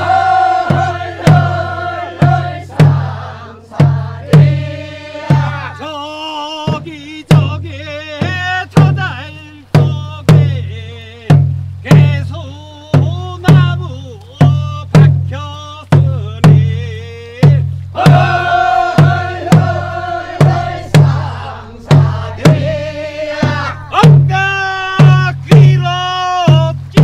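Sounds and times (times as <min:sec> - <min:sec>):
barrel drum strikes: 0:00.0 - 0:05.9, 0:06.6 - 0:10.7, 0:17.4 - 0:27.0
group of voices singing: 0:00.0 - 0:07.4, 0:17.9 - 0:25.1
lead singer singing: 0:00.0 - 0:27.0.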